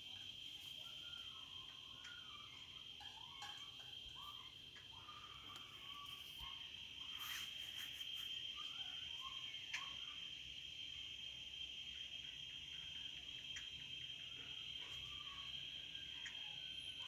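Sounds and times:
soft animal calls: 0.0s - 10.3s
crickets trilling: 0.0s - 17.0s.

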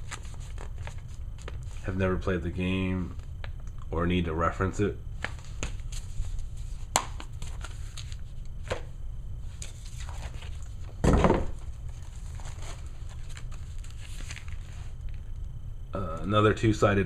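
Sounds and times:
paper rustling and crinkling: 0.0s - 1.8s, 5.2s - 8.8s, 9.5s - 15.4s.

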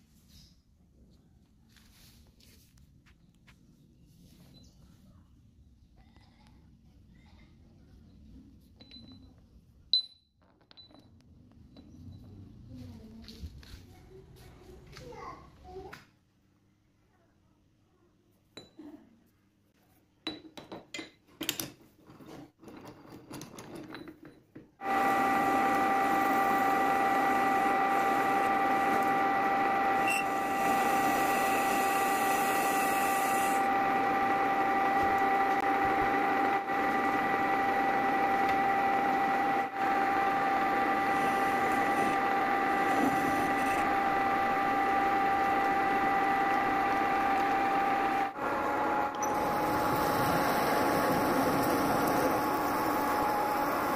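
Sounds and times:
metal clinks and knocks: 10.0s - 12.3s, 20.3s - 24.8s
lathe tool cutting hiss: 24.8s - 33.7s, 40.9s - 45.2s, 49.0s - 53.9s
metal lathe gear whine: 24.8s - 53.9s.

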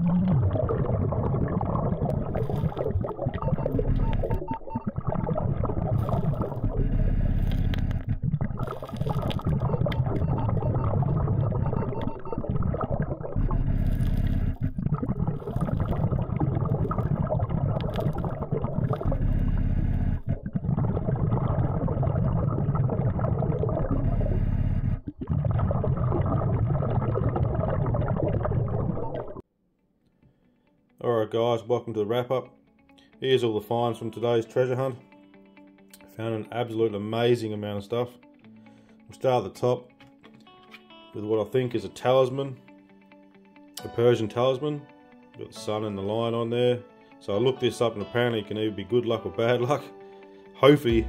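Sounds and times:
low underwater hum: 0.0s - 29.4s
underwater bubbling and gurgling: 0.0s - 29.4s.

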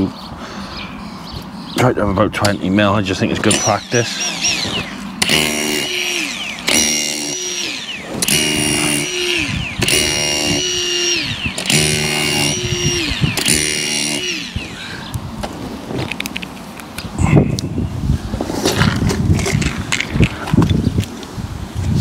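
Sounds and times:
power tool motor whining: 3.3s - 15.2s.

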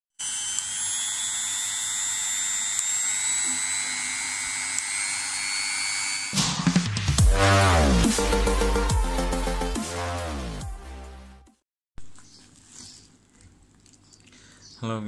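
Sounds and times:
rotary tool motor whine: 0.2s - 6.4s
music: 6.4s - 11.6s.

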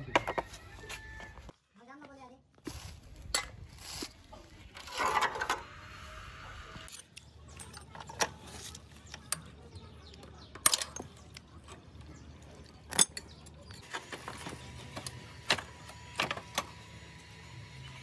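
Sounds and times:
metal tools clinking and clattering: 4.7s - 5.6s, 6.9s - 9.5s, 10.5s - 11.8s, 12.6s - 15.1s.

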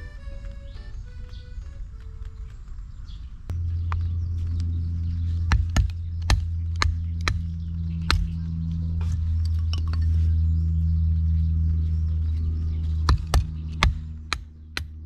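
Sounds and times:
steady low drone: 0.0s - 15.0s.

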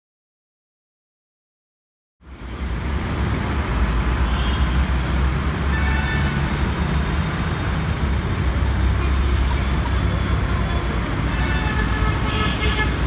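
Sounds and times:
road traffic rumble: 2.2s - 13.0s
distant horn: 10.3s - 13.0s.

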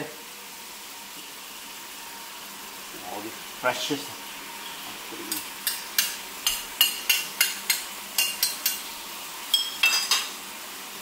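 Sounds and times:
spatula clinking on metal wok: 5.3s - 8.9s, 9.5s - 10.3s.

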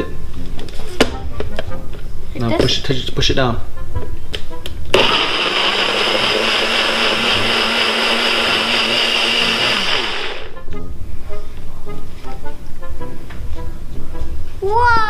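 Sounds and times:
blender running: 4.9s - 10.6s.

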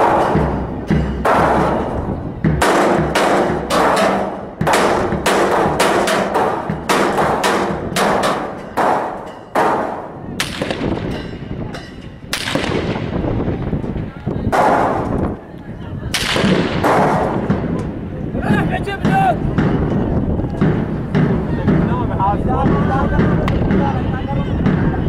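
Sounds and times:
gunshots echoing: 2.6s - 11.3s, 12.3s - 13.2s, 14.5s - 15.2s, 16.1s - 17.7s.

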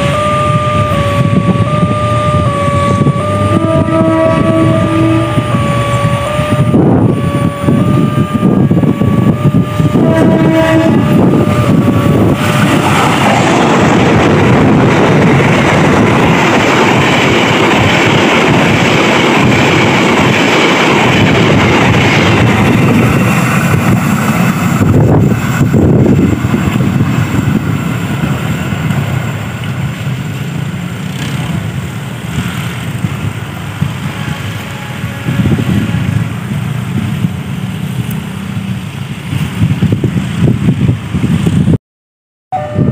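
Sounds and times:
train passing on track: 0.0s - 41.8s, 42.5s - 42.9s.

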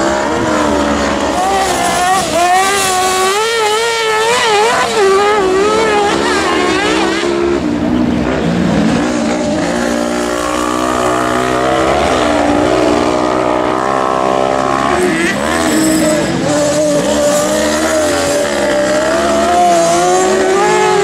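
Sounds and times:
buggy engine revving: 0.0s - 21.0s.

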